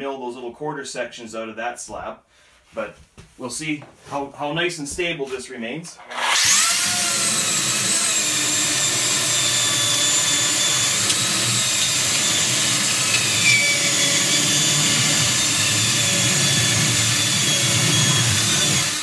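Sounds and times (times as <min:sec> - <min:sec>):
electric chainsaw cutting log: 0:06.0 - 0:19.0.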